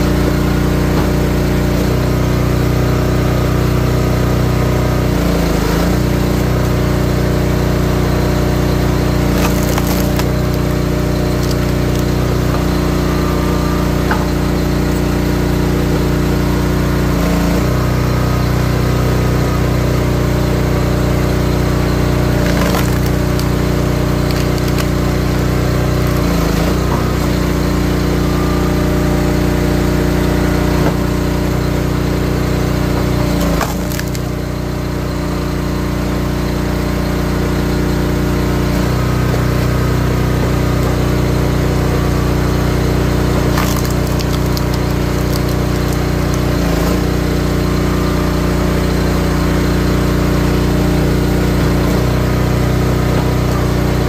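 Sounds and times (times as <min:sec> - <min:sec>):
log splitter engine running: 0:00.0 - 0:54.0
firewood cracking and splintering: 0:08.0 - 0:13.2, 0:21.3 - 0:27.8, 0:32.4 - 0:34.5, 0:42.5 - 0:47.4.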